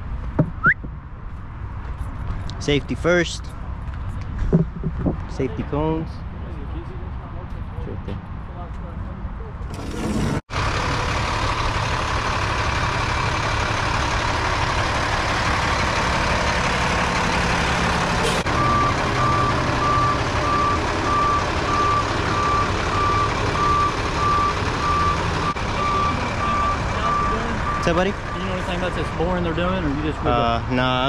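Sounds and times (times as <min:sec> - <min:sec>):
heavy vehicle engine running: 0:09.7 - 0:31.0
backup alarm beeping: 0:18.5 - 0:28.8.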